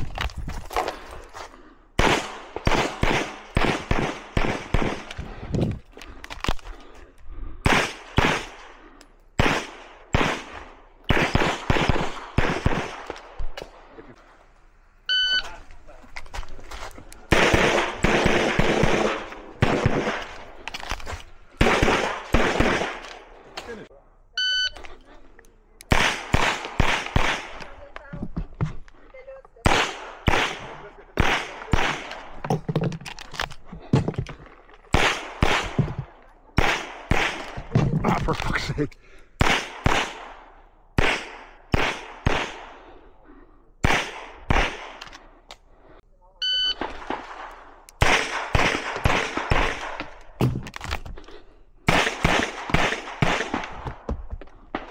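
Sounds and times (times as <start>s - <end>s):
loud pistol shots: 2.0s - 5.1s, 7.6s - 8.7s, 9.4s - 13.2s, 17.3s - 20.5s, 21.6s - 23.1s, 25.9s - 27.6s, 29.6s - 32.3s, 34.9s - 35.9s, 36.6s - 37.7s, 39.4s - 42.8s, 43.8s - 45.0s, 46.8s - 50.6s, 51.9s - 53.8s.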